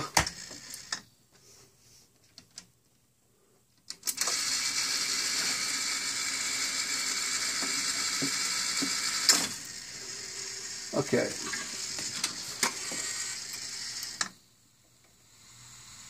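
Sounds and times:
loud static hiss from speakers: 6.2 - 16.0.

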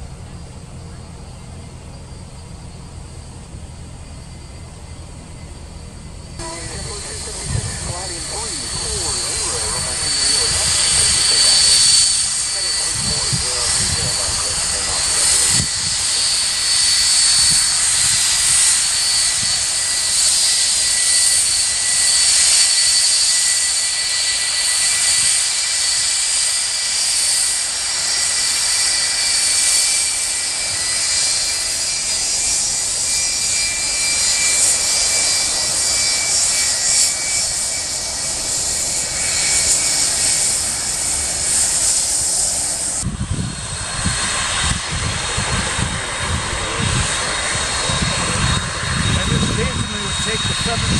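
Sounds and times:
jet engines idling: 0.0 - 50.9
wind buffeting microphone: 6.4 - 16.6, 42.9 - 50.9.

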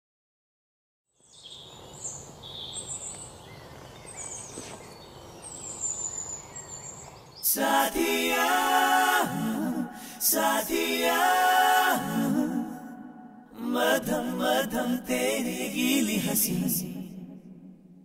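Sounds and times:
birds chirping: 1.2 - 7.8
outdoor background hiss: 1.2 - 17.9.

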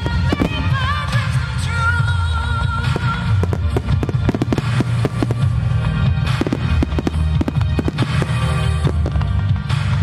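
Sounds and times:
firework shells bursting: 2.8 - 5.6, 6.2 - 9.9.

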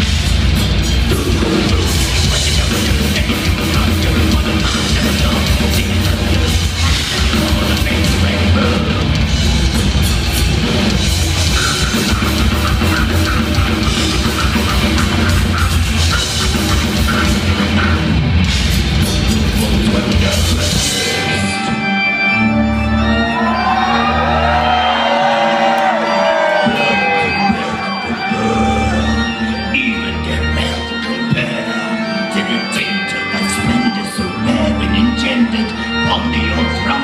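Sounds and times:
pounding drum kit: 0.0 - 21.4
bass guitar: 0.0 - 37.0
distorted guitars: 0.0 - 37.0.

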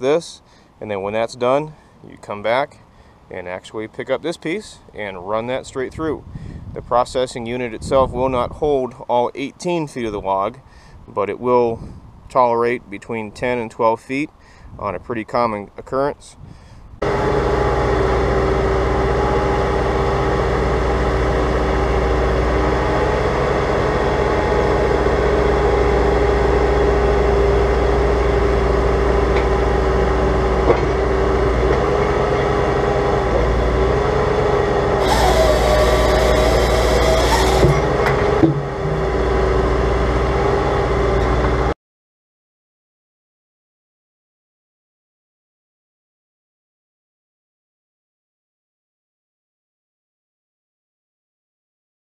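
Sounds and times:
diesel engine running under load: 17.0 - 41.7
steady whine: 35.0 - 39.4.

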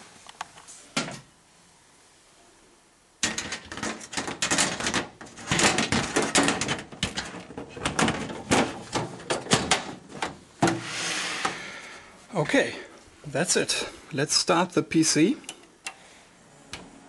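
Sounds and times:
metal panel knocks and scrapes: 3.2 - 11.6.

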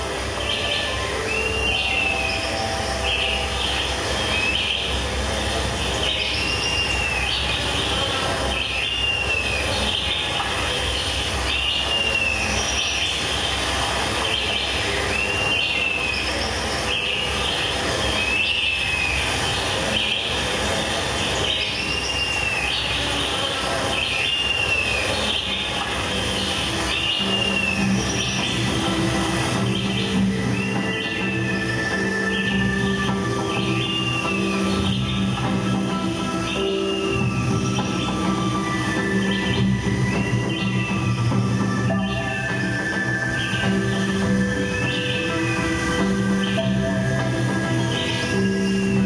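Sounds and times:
dense noise: 0.0 - 49.0.

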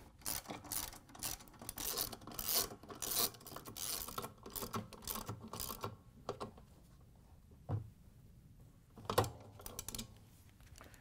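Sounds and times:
socket ratchet clicking: 0.2 - 5.9.

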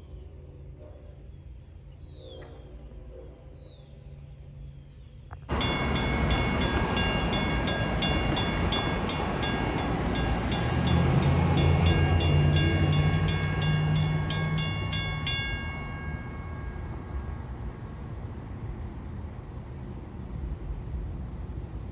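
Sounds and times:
crossing warning bell dinging: 5.5 - 19.0.

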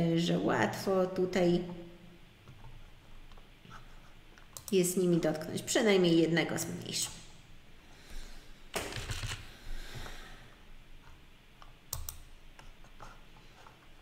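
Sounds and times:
mouse and keyboard clicks: 11.9 - 12.8.

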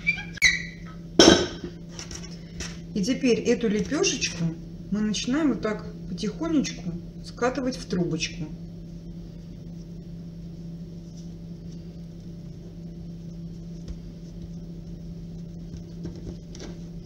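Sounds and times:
low electrical hum: 0.0 - 17.0
hands rolling dough rustles: 8.7 - 17.0.

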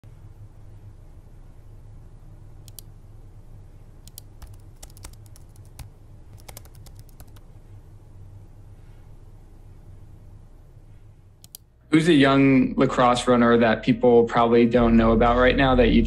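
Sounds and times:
low steady hum: 0.0 - 16.0
computer keyboard key clicks: 4.1 - 7.4.

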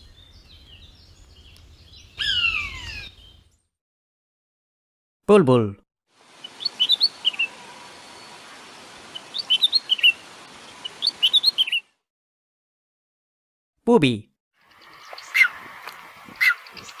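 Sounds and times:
bird singing chirpy notes: 0.0 - 3.7, 6.4 - 8.4, 9.1 - 11.9.

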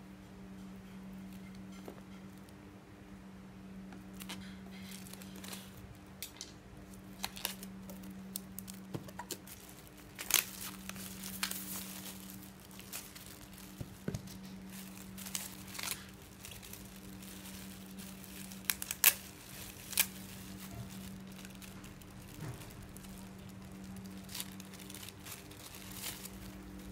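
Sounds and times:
steady low hum: 0.0 - 26.9
plastic packaging crinkling: 4.1 - 26.9.

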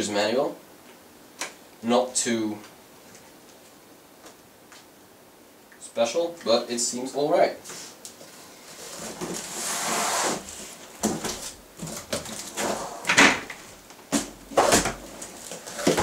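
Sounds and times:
cardboard flaps scraping: 7.7 - 16.0
box knocking and bumping: 11.0 - 16.0.

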